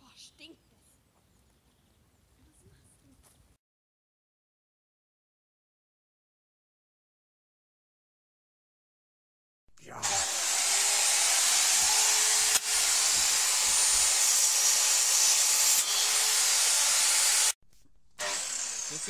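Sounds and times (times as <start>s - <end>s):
circular saw cutting: 10.0s - 17.6s, 18.2s - 19.0s.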